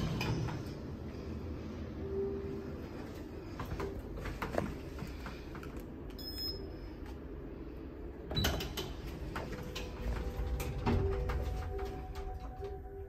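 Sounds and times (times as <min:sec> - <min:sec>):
lift low hum: 0:00.0 - 0:13.0.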